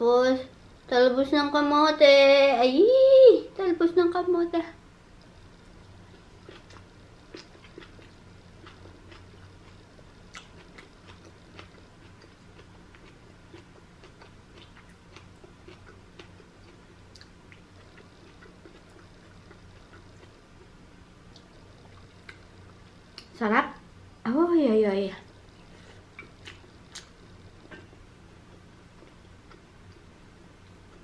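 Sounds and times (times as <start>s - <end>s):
person chewing: 6.0s - 23.3s, 25.6s - 30.1s.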